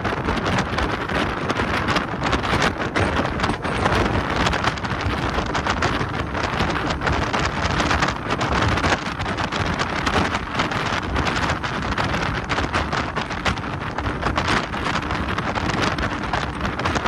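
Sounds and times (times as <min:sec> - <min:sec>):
boat engine: 0:00.0 - 0:17.0
water noise: 0:00.0 - 0:17.0
wind buffeting microphone: 0:00.0 - 0:17.0.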